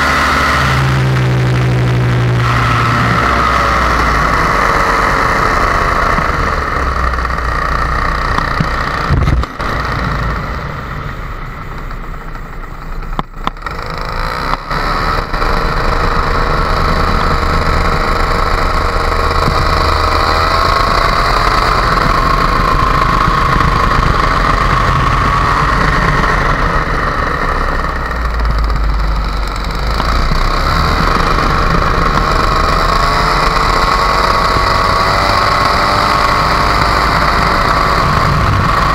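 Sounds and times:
paramotor engine running: 0.0 - 38.9
wind on microphone: 8.5 - 11.0, 30.2 - 38.9.

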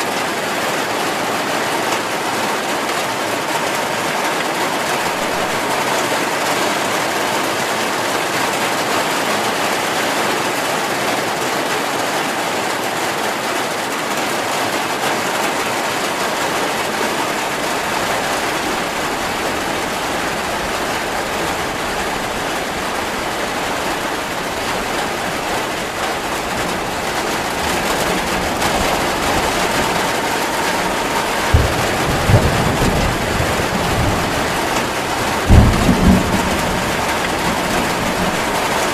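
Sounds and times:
heavy rain pouring: 0.0 - 38.9
thunder rumbling: 5.1 - 5.7, 17.4 - 38.9.

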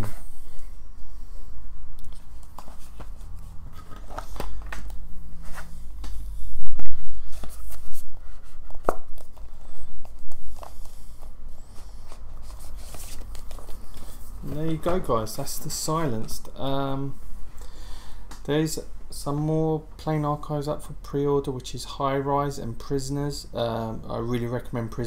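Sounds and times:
cardstock rustling: 2.1 - 6.1, 7.2 - 15.4.

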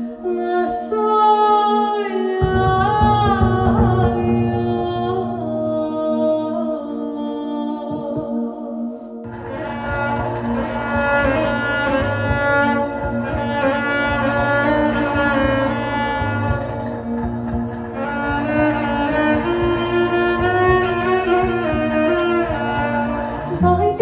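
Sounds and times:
bowed cello notes: 2.3 - 24.0
low bass drone note: 2.4 - 6.8, 9.3 - 24.0.

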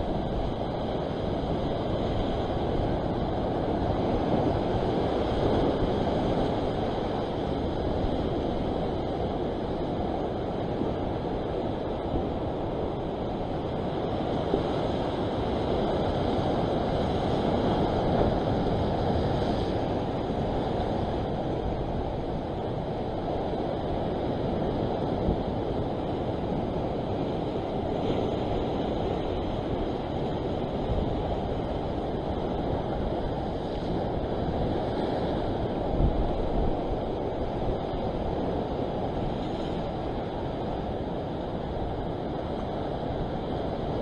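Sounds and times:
sea surf washing: 0.0 - 44.0
wind buffeting microphone: 0.0 - 44.0.

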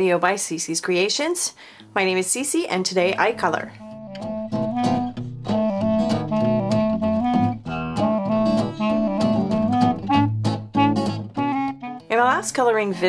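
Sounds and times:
instrumental intro music: 3.1 - 13.0.

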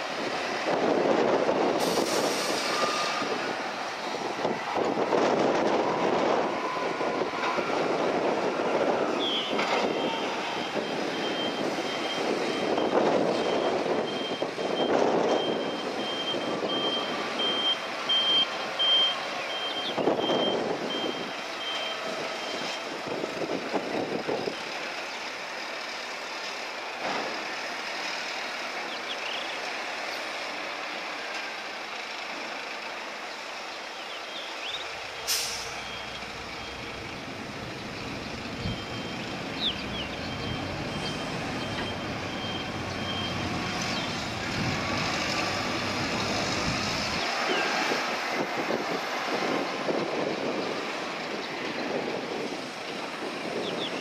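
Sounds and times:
heavy machinery engine: 0.0 - 28.9, 34.8 - 53.9
high-pitched warning beeper: 38.6 - 39.4.

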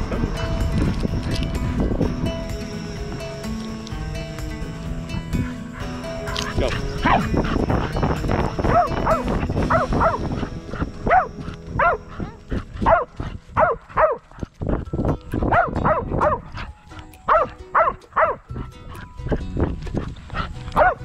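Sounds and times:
puppy whining: 5.3 - 13.1.

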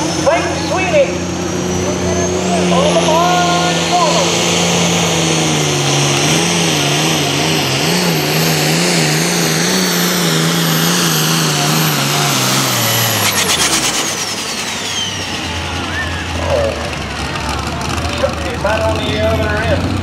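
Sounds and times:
high whine: 0.0 - 17.0
pulling tractor engine full throttle: 0.0 - 20.0.

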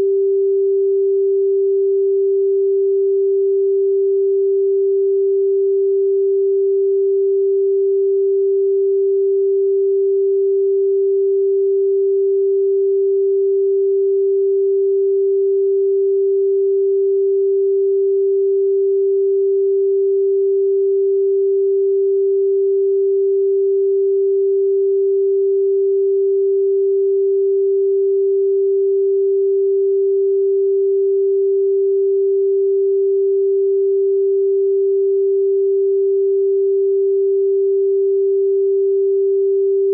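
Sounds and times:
sine-wave test tone: 0.0 - 39.9.

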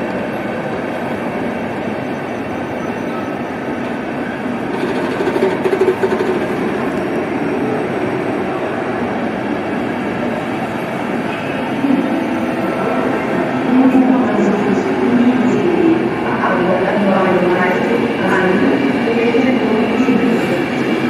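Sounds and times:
train wheels rumbling: 0.0 - 21.0
train wheels clattering: 4.6 - 7.2.

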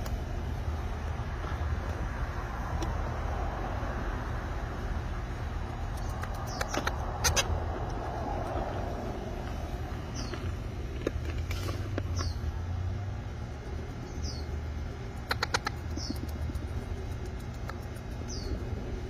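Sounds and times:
low rumble: 0.4 - 15.1
parrot chicks squawking: 6.0 - 7.8, 14.0 - 16.6.

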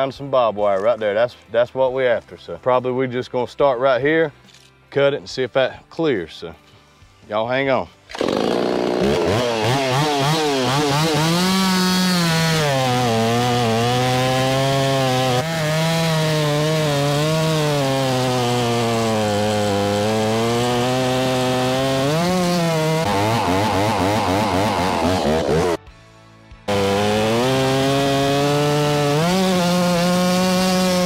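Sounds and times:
chainsaw revving and cutting log: 8.1 - 25.8, 26.7 - 31.0.

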